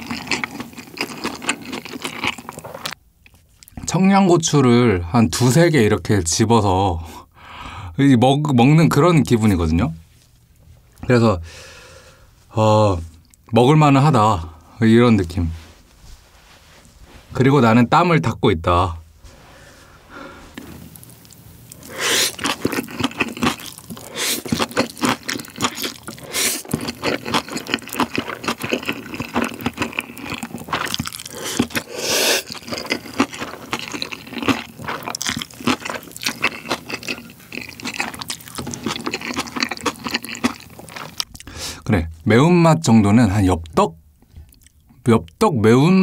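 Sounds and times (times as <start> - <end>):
noodles slurping: 0.0 - 3.0, 20.5 - 41.5
wet chewing and smacking: 0.0 - 3.8, 20.5 - 41.5.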